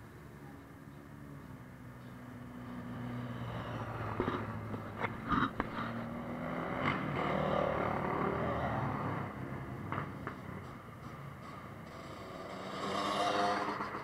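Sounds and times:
quad bike passing by: 0.9 - 14.0
motorcycle engines idling: 3.7 - 8.4.

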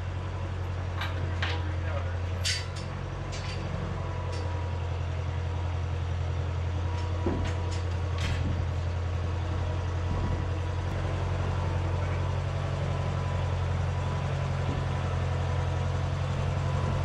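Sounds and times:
engine droning: 0.0 - 17.0.

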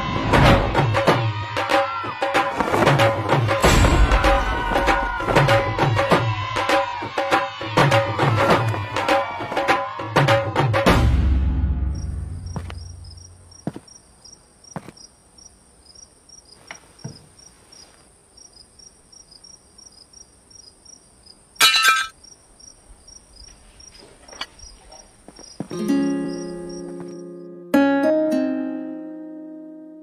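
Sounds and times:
crickets chirping: 11.7 - 27.6.

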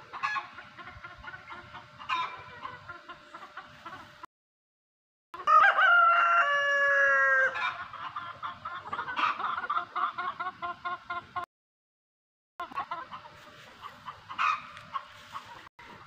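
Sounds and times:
chickens clucking: 0.0 - 4.3, 5.4 - 11.5, 12.6 - 16.0
rooster crowing: 5.4 - 7.7.

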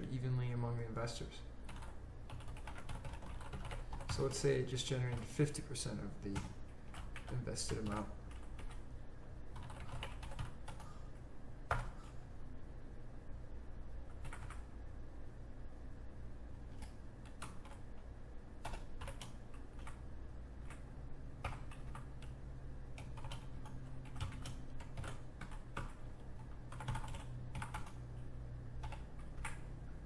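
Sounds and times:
steady low hum: 0.0 - 30.0
keyboard typing: 1.6 - 5.6, 6.3 - 8.8, 9.5 - 11.0, 11.7 - 12.1, 14.1 - 14.7, 16.7 - 18.0, 18.6 - 20.0, 20.6 - 20.8, 21.4 - 29.7.

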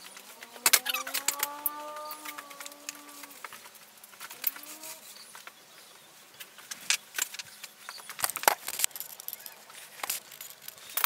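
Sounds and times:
metal squeak: 0.7 - 2.9
metal clicks and rattles: 8.1 - 11.0.

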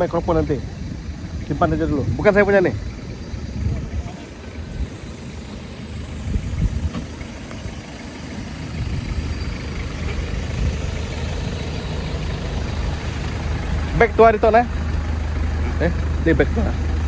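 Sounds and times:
vehicle engine idling: 0.0 - 17.0.

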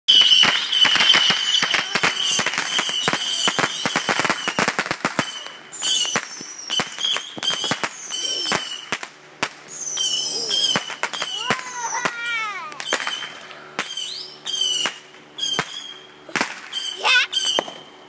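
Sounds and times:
fireworks crackling pops: 0.1 - 17.9
fireworks whistling: 0.1 - 18.0.

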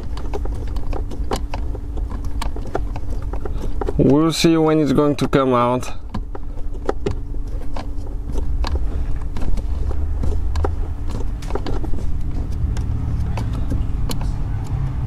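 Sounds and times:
steady low hum: 0.0 - 15.0
socket wrench clicks and scrapes: 6.0 - 15.0.

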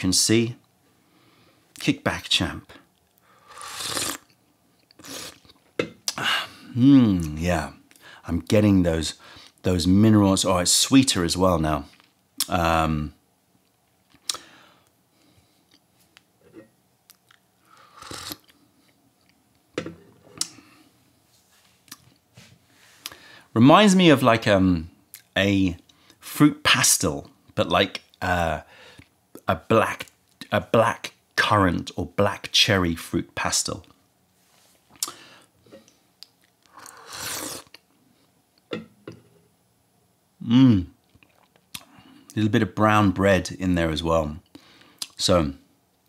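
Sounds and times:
person slurping: 3.5 - 4.4, 5.0 - 5.5, 17.8 - 18.6, 36.6 - 37.8.

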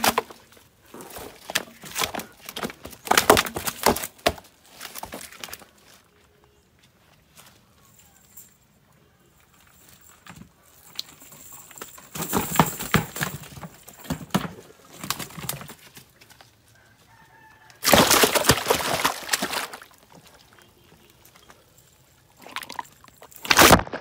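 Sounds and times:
loud water splashing: 17.8 - 19.9
fish flapping and slapping: 17.8 - 20.1.

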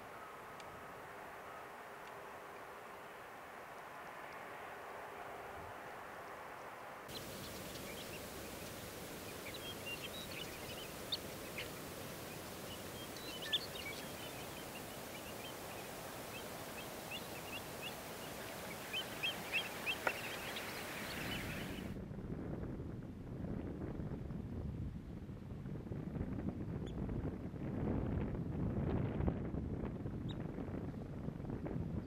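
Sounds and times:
background hiss: 0.0 - 22.0
shorebirds calling: 7.1 - 21.9.

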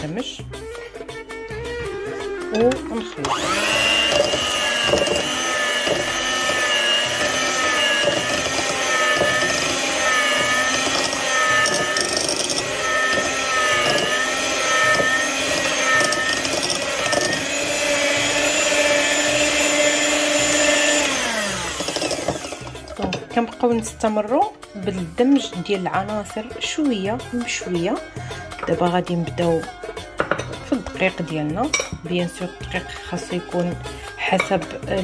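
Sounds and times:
electric hand mixer whining: 1.7 - 23.6.

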